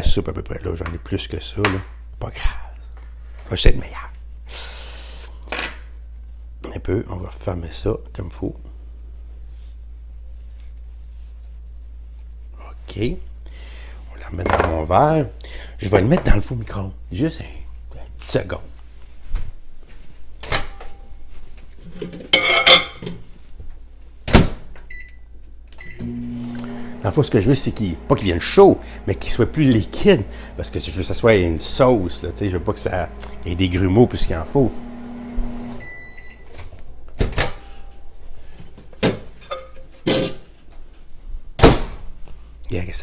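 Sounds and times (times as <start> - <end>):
glass clattering: 22.3 - 23.1, 39.4 - 40.4.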